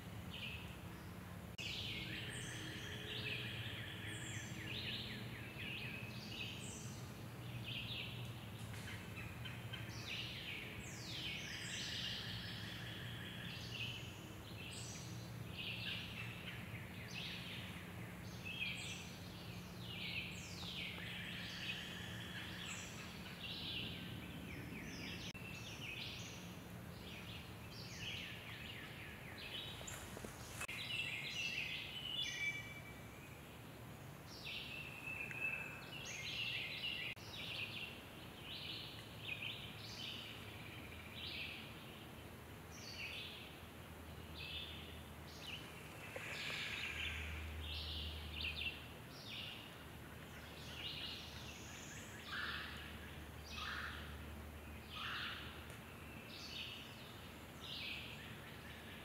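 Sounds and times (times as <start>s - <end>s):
birds chirping and trilling: 44.4s - 54.2s.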